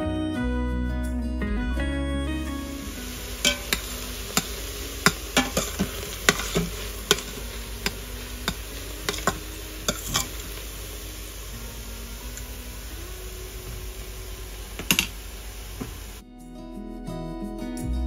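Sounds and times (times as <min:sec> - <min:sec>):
meat sizzling: 0:02.6 - 0:16.2
utensil scraping a pan: 0:02.9 - 0:12.9.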